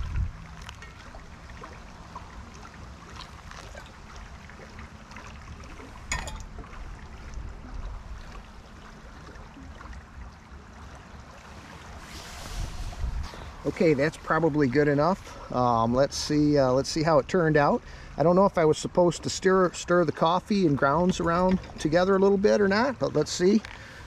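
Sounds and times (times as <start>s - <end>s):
wind rumble on microphone: 0.0s - 2.5s, 5.4s - 10.3s, 11.6s - 14.4s
river water flowing: 0.0s - 24.0s
metal pot clink on stove: 6.1s - 6.5s.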